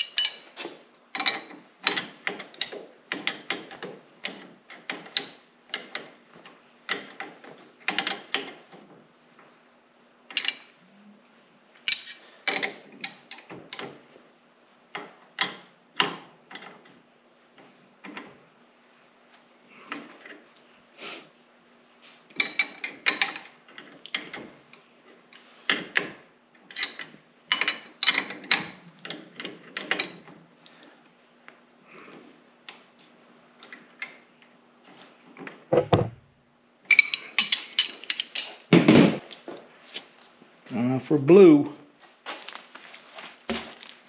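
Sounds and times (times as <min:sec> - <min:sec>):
wrenches clinking on metal fittings: 0:00.0 - 0:06.0, 0:10.3 - 0:10.7, 0:11.9 - 0:13.5, 0:26.7 - 0:30.3, 0:36.9 - 0:38.6
dull heavy metal knock: 0:35.7 - 0:36.2.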